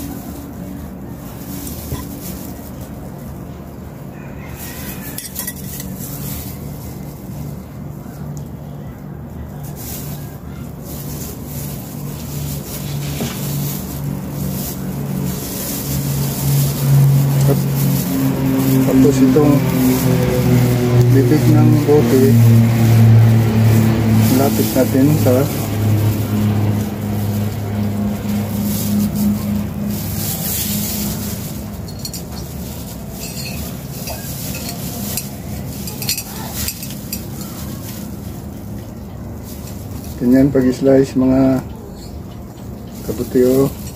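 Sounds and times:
low engine drone: 0:00.0 - 0:43.9
steady low hum: 0:00.0 - 0:43.9
glass bottle clinks and rustles: 0:05.2 - 0:06.0, 0:31.8 - 0:37.6.

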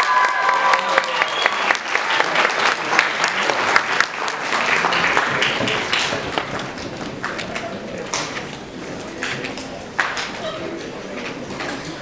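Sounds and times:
audience applause: 0:00.0 - 0:07.5.

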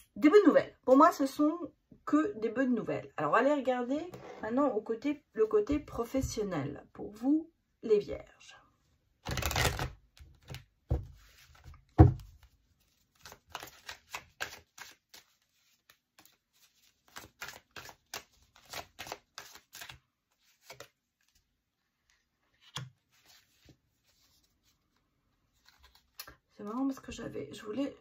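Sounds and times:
cards being shuffled: 0:09.2 - 0:27.1.

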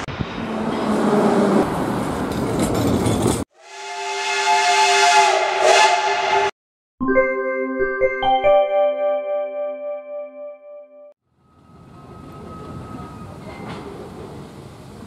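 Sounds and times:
train rushing past: 0:00.0 - 0:06.5, 0:11.4 - 0:15.0
steam locomotive whistle: 0:03.6 - 0:06.5
keyboard music jingle: 0:07.0 - 0:11.2.

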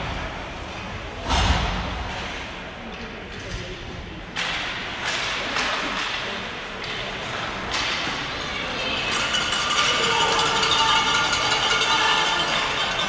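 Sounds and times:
noisy rink background: 0:00.0 - 0:13.0
hockey sticks clacking on puck: 0:04.3 - 0:13.0.

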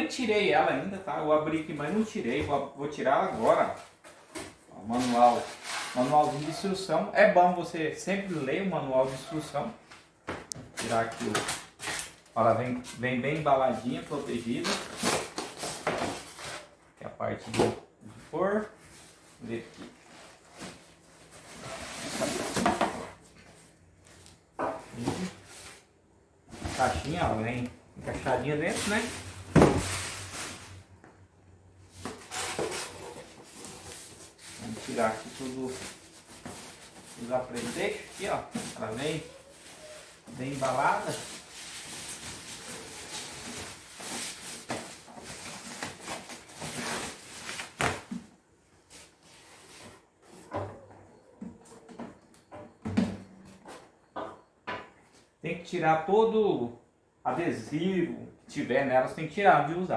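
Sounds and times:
cardboard and packing rustling: 0:03.2 - 0:06.8, 0:09.0 - 0:13.0, 0:18.5 - 0:25.8, 0:26.5 - 0:30.8, 0:31.9 - 0:51.3.

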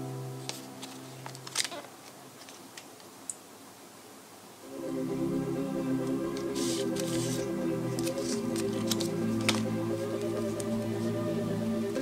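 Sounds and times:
background music with held notes: 0:00.0 - 0:01.7, 0:04.6 - 0:12.0.

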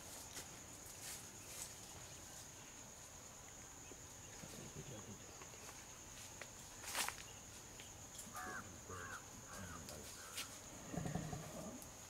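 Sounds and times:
high insect buzz: 0:00.0 - 0:12.0
crow cawing: 0:08.3 - 0:10.5.

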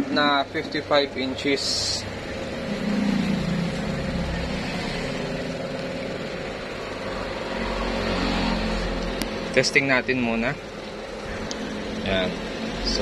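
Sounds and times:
motor hum and hiss: 0:00.0 - 0:13.0.

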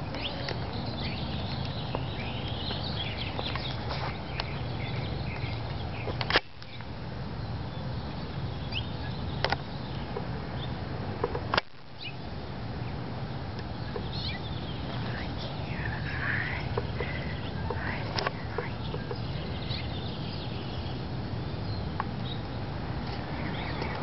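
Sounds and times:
small birds chirping: 0:00.0 - 0:24.0
steady low rumble: 0:11.8 - 0:24.0.

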